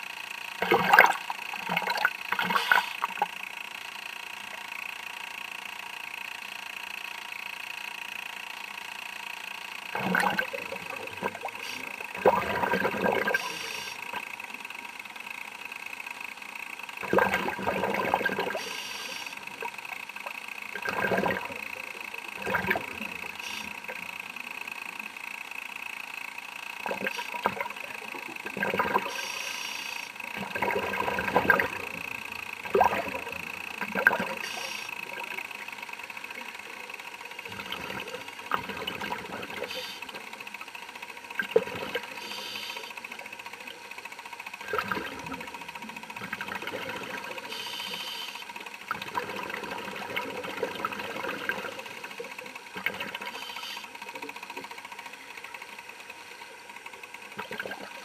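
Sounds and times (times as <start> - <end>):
thin high whine: 0.0 - 16.0, 16.7 - 49.0, 49.9 - 55.5
exhaled bubbles bursting: 0.6 - 3.2, 10.0 - 11.6, 12.2 - 13.4, 17.0 - 18.6, 20.8 - 21.7, 22.4 - 23.0, 30.4 - 31.9, 32.6 - 34.4, 48.9 - 52.0, 57.4 - 58.0
diver breathing through regulator: 29.0 - 30.1, 34.3 - 34.9, 42.0 - 43.0, 47.4 - 48.5.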